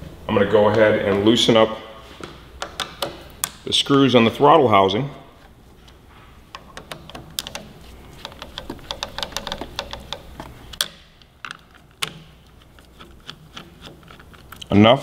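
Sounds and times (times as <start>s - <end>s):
screwdriver clicking on screws: 6.6s - 14.6s.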